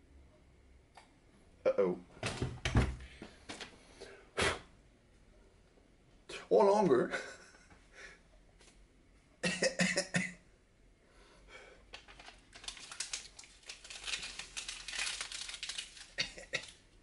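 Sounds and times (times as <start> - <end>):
man coughing: 9.4 - 10.4
dense crackling clicks: 11.9 - 17.0.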